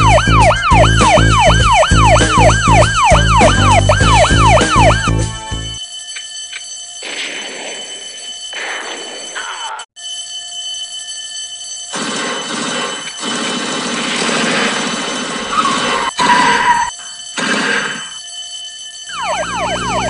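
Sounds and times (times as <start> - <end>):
siren wailing: 0.0 - 5.8, 7.0 - 10.0, 14.2 - 18.3, 18.9 - 20.0
electric alarm bell ringing: 0.0 - 20.0.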